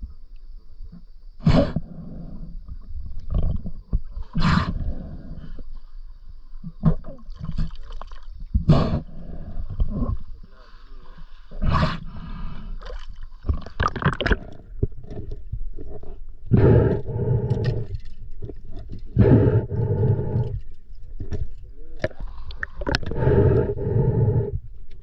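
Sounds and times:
muffled water gurgling: 12.8s - 25.0s.

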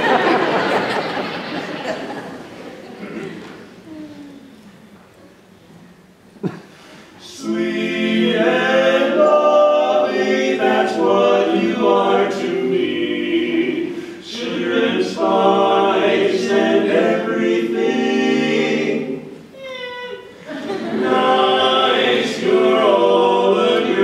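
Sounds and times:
male quartet singing a cappella: 7.2s - 19.5s, 20.4s - 24.0s.

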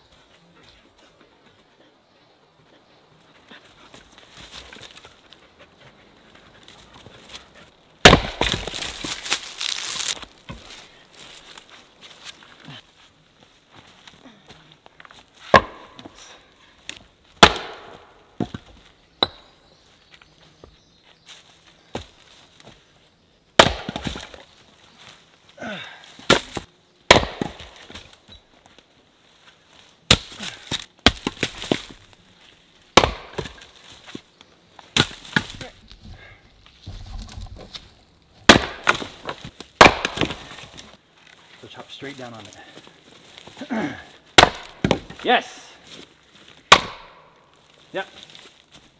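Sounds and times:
axe chopping firewood: 8.0s - 11.3s, 15.4s - 16.2s, 16.9s - 19.5s, 23.6s - 24.4s, 26.2s - 28.2s, 30.1s - 32.1s, 32.9s - 33.8s, 34.9s - 35.9s, 38.4s - 40.9s, 43.8s - 45.3s, 46.6s - 47.3s
wood cracking as it splits: 8.0s - 11.6s, 16.9s - 18.0s, 23.6s - 24.4s, 36.9s - 41.0s, 44.4s - 45.3s.

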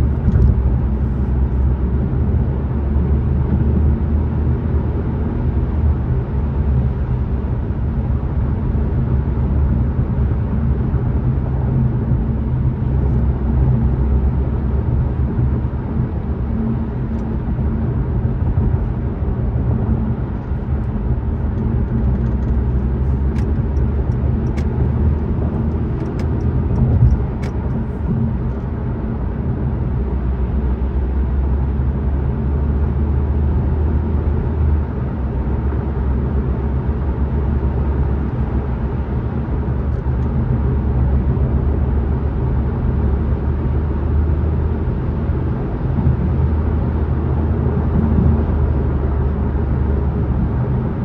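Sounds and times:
car road and engine drone: 0.0s - 51.0s.

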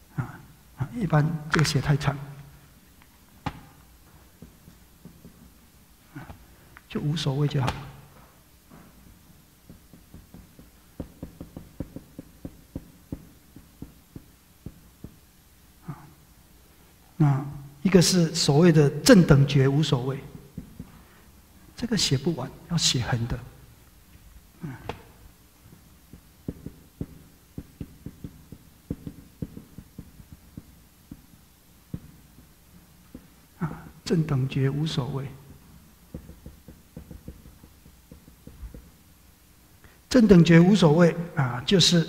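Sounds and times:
marker tapping on a whiteboard: 3.4s - 3.8s, 4.4s - 5.6s, 9.6s - 15.2s, 20.5s - 21.0s, 25.7s - 33.4s, 36.1s - 39.0s.

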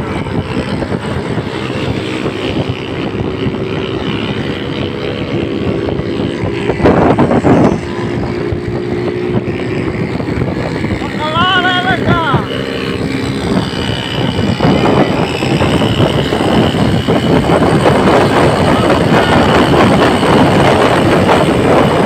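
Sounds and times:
rough rush of noise: 0.0s - 22.0s
small vehicle engine running: 0.0s - 22.0s
wind and road noise: 0.0s - 22.0s.

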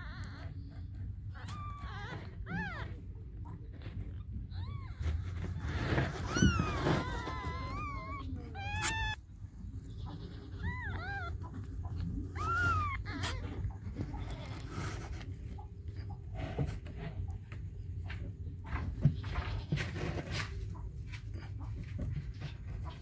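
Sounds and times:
kittens mewing: 0.0s - 20.4s
low steady rumble: 0.0s - 23.0s
rustling: 0.0s - 23.0s.

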